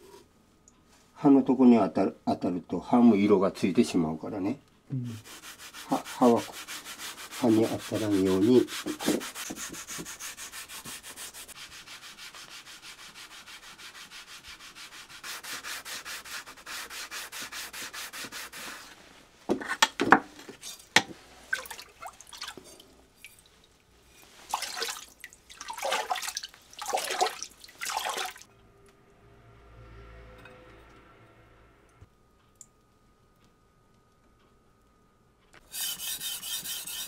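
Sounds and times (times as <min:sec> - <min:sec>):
polishing stone rubbing on knife: 0:05.2 - 0:19.0, 0:35.6 - 0:37.0
uneven scraping strokes: 0:05.2 - 0:19.8, 0:35.6 - 0:37.0.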